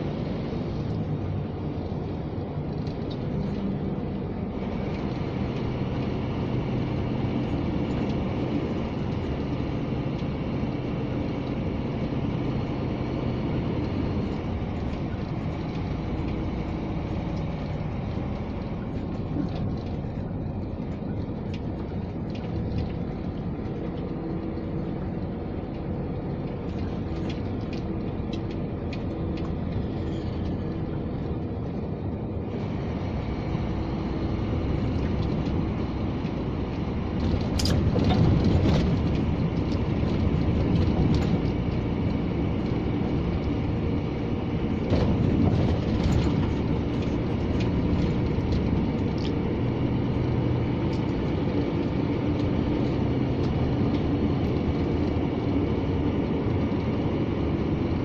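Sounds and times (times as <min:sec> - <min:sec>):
road noise: 0:00.0 - 0:58.0
truck diesel engine drone: 0:00.0 - 0:58.0.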